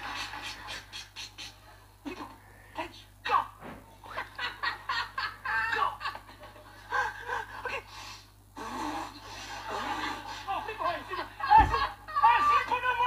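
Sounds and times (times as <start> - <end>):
man laughing: 4.0 - 7.8.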